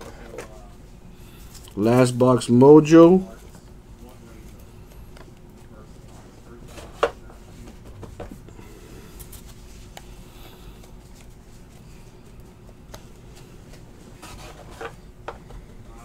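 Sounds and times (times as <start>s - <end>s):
low steady hum: 0.0s - 16.0s
trading cards handled: 9.1s - 15.8s
soft clicks of card edges: 9.2s - 13.8s.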